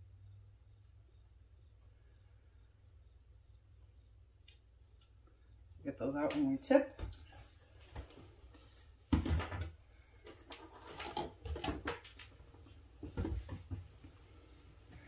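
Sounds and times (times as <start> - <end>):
plastic bottles knocking on table: 9.1 - 9.8.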